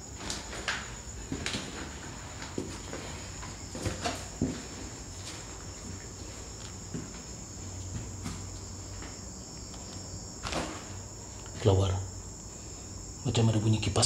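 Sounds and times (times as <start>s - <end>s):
crickets chirring: 0.0s - 14.0s.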